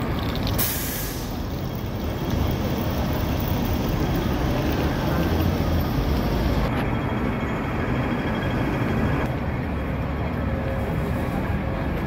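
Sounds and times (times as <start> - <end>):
bus nearby: 0.0 - 12.0
low traffic rumble: 0.0 - 12.0
vehicles passing: 0.0 - 12.0
brief hiss: 0.6 - 1.3.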